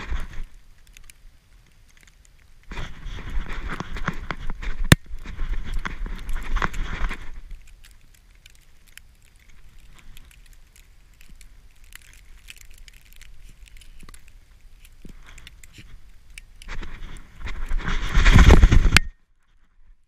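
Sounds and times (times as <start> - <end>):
clicks and rustling on camera: 0.0 - 20.0
loud rushing rubbing noise: 17.5 - 19.0.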